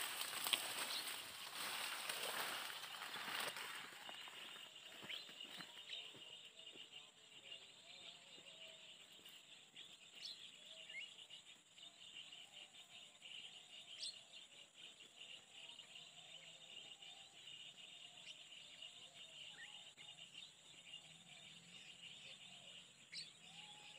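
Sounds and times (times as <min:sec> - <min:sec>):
high insect chorus: 0:00.0 - 0:23.9.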